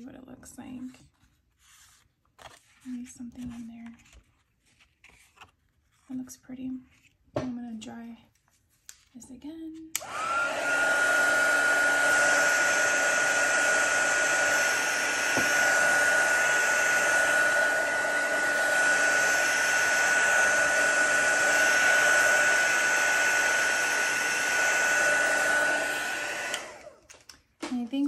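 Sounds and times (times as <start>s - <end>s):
heat tool blowing hot air: 10.0s - 27.0s.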